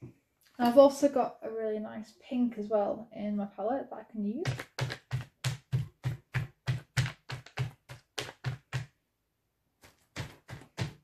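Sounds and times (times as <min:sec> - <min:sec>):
ball dabbing on paper: 0:04.4 - 0:09.0, 0:09.8 - 0:11.0.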